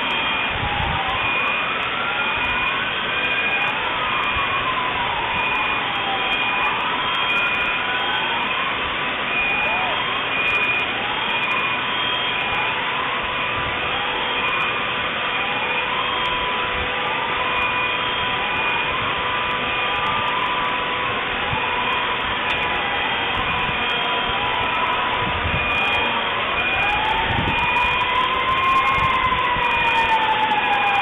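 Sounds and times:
electronic alarms: 0:00.0 - 0:31.0.

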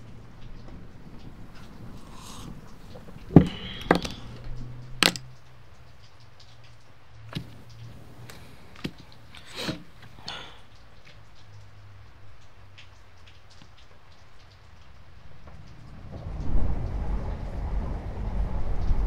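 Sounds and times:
low steady hum: 0:00.0 - 0:05.5, 0:07.3 - 0:10.8.

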